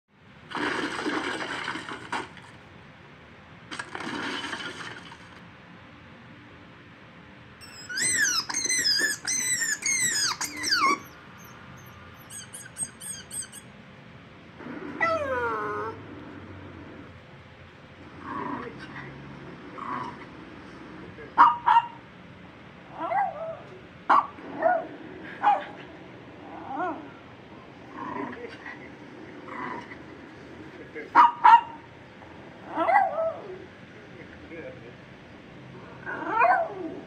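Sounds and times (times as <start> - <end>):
high falling animal cries: 7.6 - 13.7.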